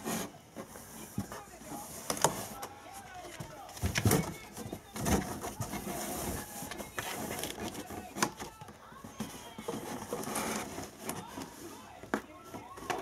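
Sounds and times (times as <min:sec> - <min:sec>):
cat claws scraping cardboard: 0:00.0 - 0:13.0.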